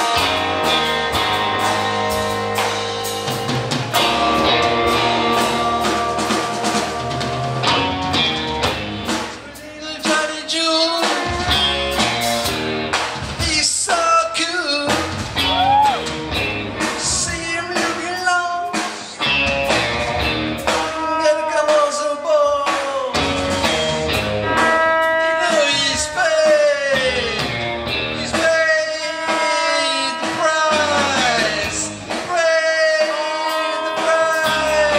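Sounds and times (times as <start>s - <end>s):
live rock band playing: 0.0s - 34.9s
person singing: 9.4s - 12.0s, 20.7s - 23.4s, 24.5s - 27.6s, 28.2s - 34.9s.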